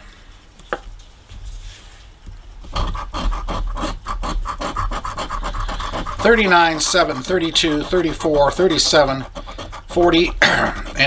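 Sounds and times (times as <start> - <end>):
coin scratching lottery ticket: 2.6 - 11.0.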